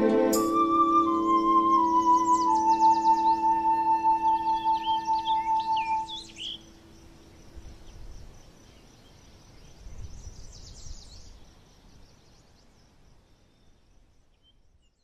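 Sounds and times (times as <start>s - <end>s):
steady low hiss: 0.0s - 15.0s
high bird chirps: 0.4s - 6.8s.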